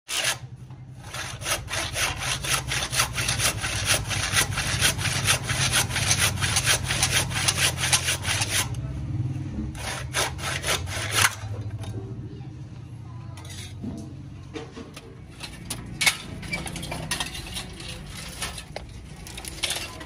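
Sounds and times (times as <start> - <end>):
hand saw cutting wood: 0.1 - 8.8, 9.8 - 11.6.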